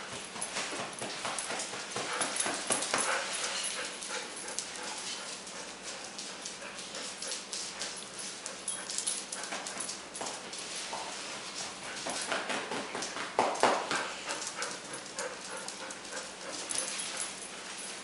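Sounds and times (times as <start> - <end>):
claws clicking on tile floor: 0.5 - 10.6, 11.9 - 17.4.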